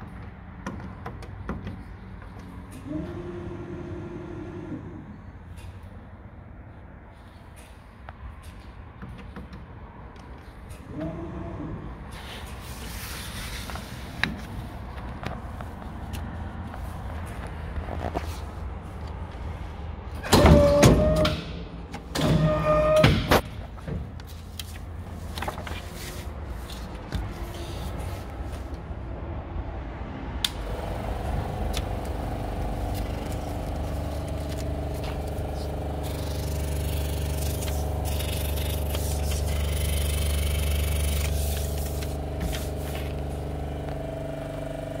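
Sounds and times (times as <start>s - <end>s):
paper cutter drive hum: 30.5s - 45.0s.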